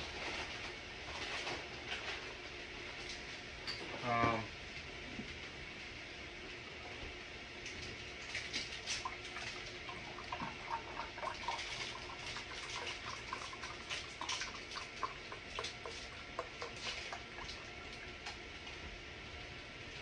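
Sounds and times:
chicken frying in oil: 0:07.7 - 0:20.0.

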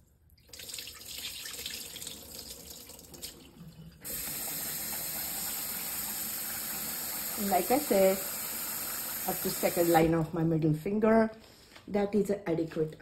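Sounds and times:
kitchen tap running: 0:00.4 - 0:10.1.

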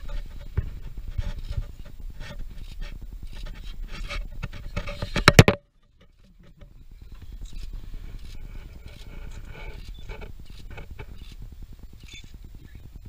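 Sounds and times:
claws scraping on steel plate: 0:00.0 - 0:06.7.

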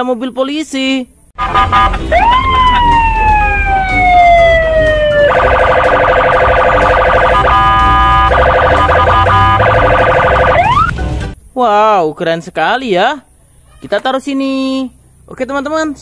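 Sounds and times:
police siren wailing: 0:01.4 - 0:10.9.

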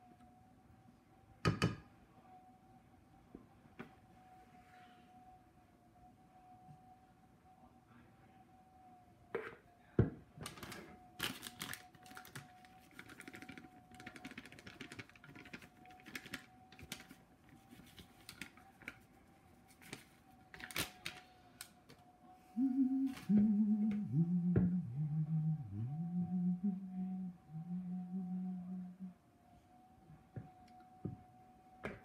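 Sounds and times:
faint steady tone: 0:00.0 - 0:32.0
plastic bag crinkling: 0:10.5 - 0:19.1, 0:19.7 - 0:21.7
man humming: 0:22.5 - 0:29.2.

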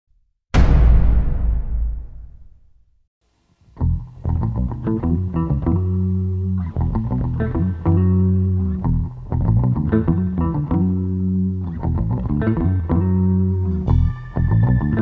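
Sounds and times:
guitar and bass music: 0:03.8 - 0:15.0.

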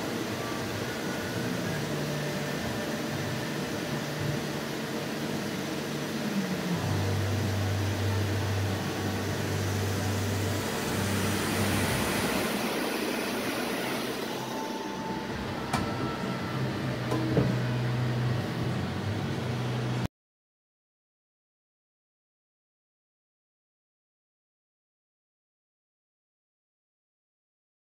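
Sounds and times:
lathe spindle running: 0:00.0 - 0:20.1.

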